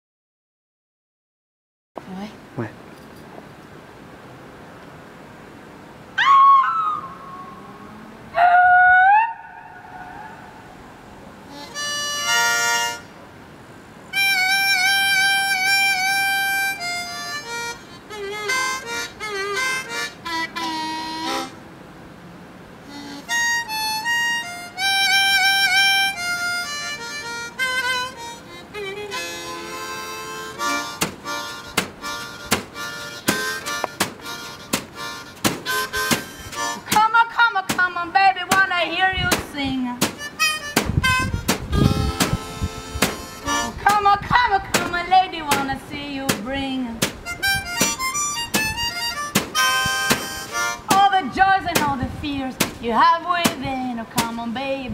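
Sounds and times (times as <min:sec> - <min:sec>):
harmonica playing: 0:11.4 - 0:13.2, 0:14.1 - 0:21.7, 0:22.8 - 0:37.6, 0:40.2 - 0:45.3, 0:47.2 - 0:51.6
sharp percussive taps: 0:31.0 - 0:36.3, 0:40.0 - 0:42.4, 0:43.0 - 0:43.2, 0:47.0 - 0:47.2, 0:47.8 - 0:50.3.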